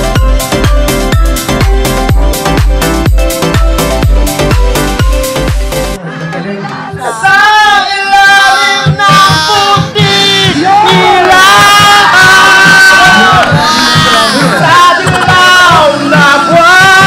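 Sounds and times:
music with a steady beat: 0:00.0 - 0:06.0, 0:08.8 - 0:17.0
man singing into a microphone: 0:14.2 - 0:17.0.

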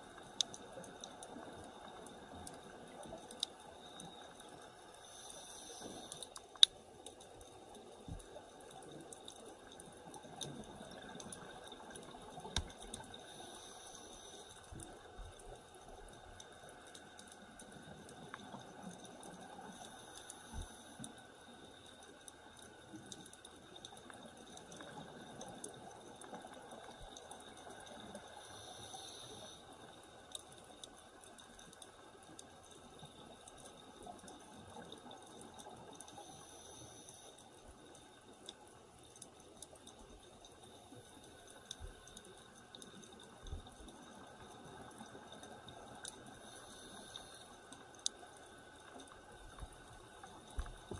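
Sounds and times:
small clicks: 0:00.0 - 0:50.9
underwater hiss: 0:03.8 - 0:06.6, 0:13.1 - 0:15.2, 0:16.5 - 0:22.1, 0:26.5 - 0:30.0, 0:35.7 - 0:37.4, 0:44.1 - 0:50.9.

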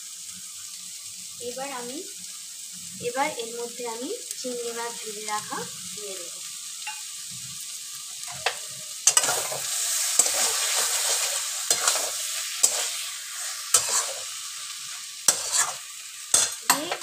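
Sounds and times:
paste sizzling in a wok: 0:00.0 - 0:17.0
metal spatula scraping a wok: 0:08.3 - 0:17.0.

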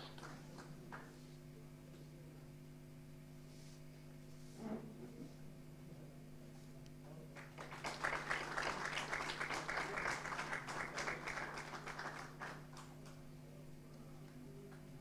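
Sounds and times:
small group applauding: 0:00.0 - 0:01.2, 0:07.3 - 0:13.3.

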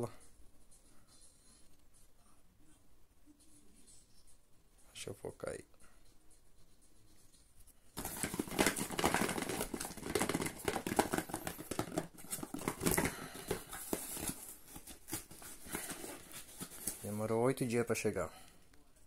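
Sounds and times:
plastic pill bottles clicking: 0:08.0 - 0:17.0
cardboard packaging rustling: 0:08.0 - 0:17.8.

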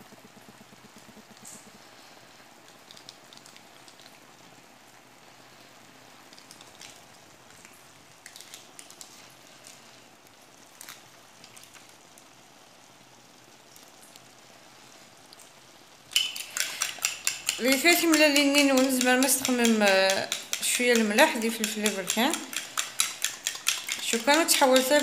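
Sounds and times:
food sizzling in a frying pan: 0:10.5 - 0:25.0.

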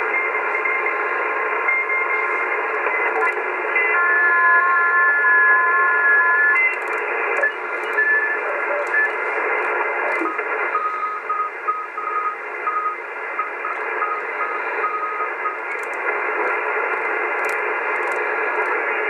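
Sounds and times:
radio static hiss: 0:00.0 - 0:19.0
morse code beeps: 0:01.7 - 0:03.4, 0:06.5 - 0:09.4, 0:10.1 - 0:18.8.

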